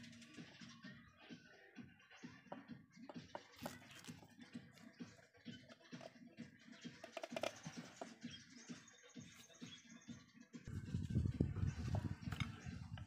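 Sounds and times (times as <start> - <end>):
clicks and scratching of handling: 7.0 - 8.2.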